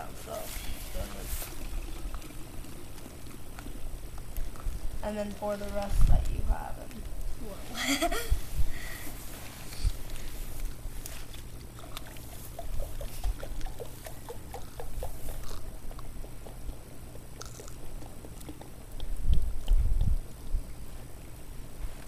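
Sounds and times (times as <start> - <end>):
soda glugging from plastic bottle: 1.1 - 4.8, 11.4 - 20.1
wind rumble on microphone: 4.4 - 7.5, 8.1 - 10.7, 19.0 - 20.8.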